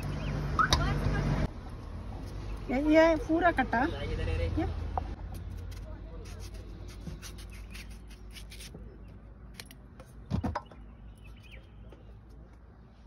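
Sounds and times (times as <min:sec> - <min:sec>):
knife scraping mango: 0:05.4 - 0:08.8.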